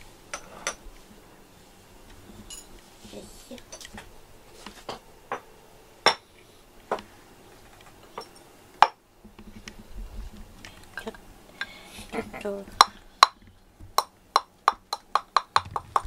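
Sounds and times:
dishes and utensils clinking: 0:00.3 - 0:00.9, 0:02.4 - 0:02.8, 0:08.0 - 0:09.0.

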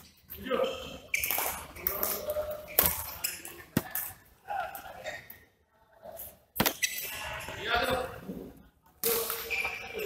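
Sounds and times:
rackets hitting shuttlecock: 0:01.1 - 0:04.2.

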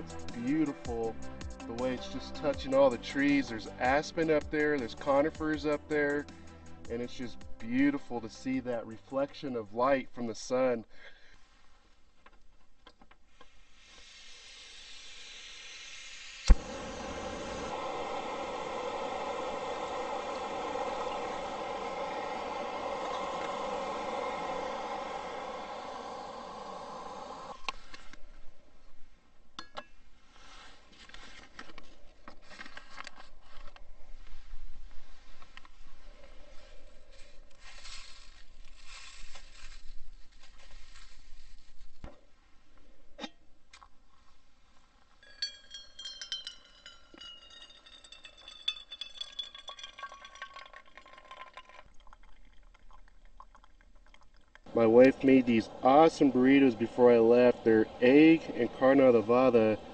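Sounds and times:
gas stove burner hissing: 0:13.6 - 0:27.8, 0:54.7 - 0:59.9
water pouring onto coffee grounds: 0:16.5 - 0:27.6, 0:46.3 - 0:59.9
paper filter rustling: 0:37.2 - 0:42.0
plastic dripper clinking on steel mug: 0:45.2 - 0:52.1.

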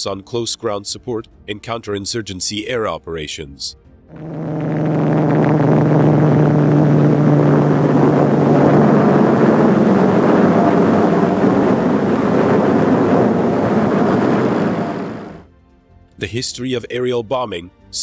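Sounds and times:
propeller plane engines roaring: 0:04.1 - 0:15.4.

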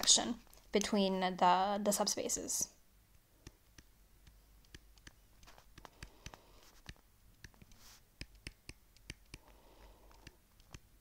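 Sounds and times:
stylus clicking on screen: 0:03.4 - 0:10.9
stylus scratching: 0:03.4 - 0:10.9.

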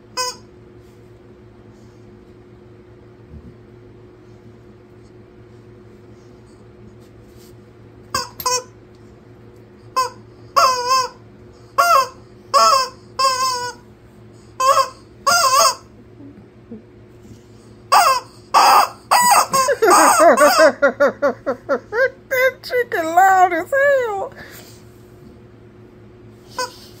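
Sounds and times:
rubber chicken toy squawking: 0:00.2 - 0:00.4, 0:10.0 - 0:11.2, 0:11.8 - 0:13.8, 0:14.6 - 0:15.9, 0:17.9 - 0:20.6.

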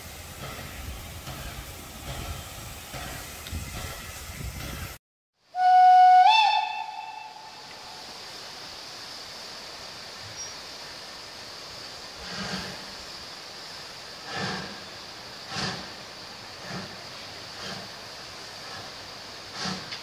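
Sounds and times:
steam locomotive rumble: 0:00.0 - 0:05.0, 0:05.6 - 0:20.0
steam hiss: 0:00.0 - 0:20.0
steam locomotive whistle: 0:05.5 - 0:08.0.

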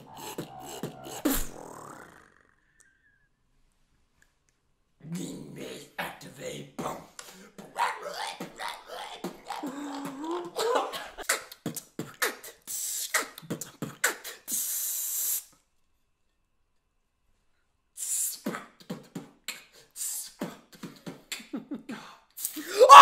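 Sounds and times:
beatboxing: 0:00.0 - 0:02.5, 0:06.8 - 0:15.5, 0:18.0 - 0:22.8.

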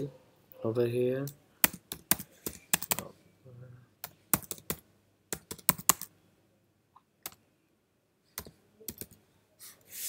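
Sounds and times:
computer keyboard typing: 0:01.6 - 0:03.1, 0:04.0 - 0:06.1, 0:08.4 - 0:09.2.

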